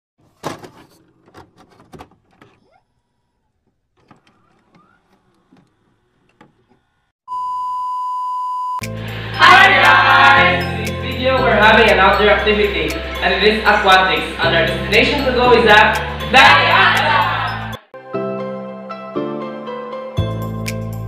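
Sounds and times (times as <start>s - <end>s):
music with heavy bass: 8.8s - 17.9s.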